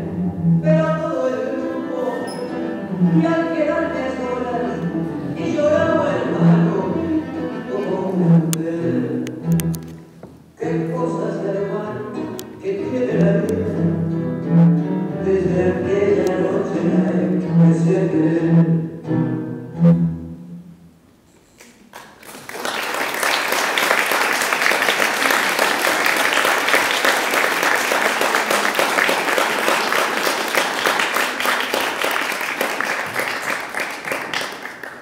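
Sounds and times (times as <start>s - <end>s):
bowed string music: 0.0s - 20.9s
audience applauding: 21.7s - 35.0s.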